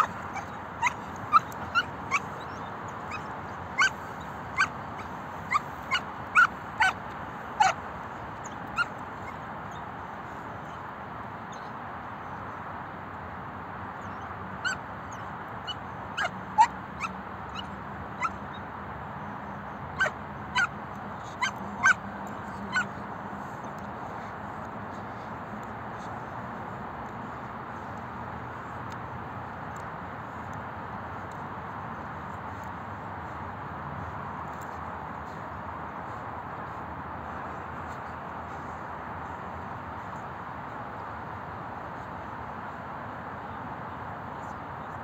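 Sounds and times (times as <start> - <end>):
puppy barking high-pitched: 0.0 - 7.0, 7.6 - 7.8, 8.4 - 9.4, 15.6 - 18.6, 20.0 - 23.0.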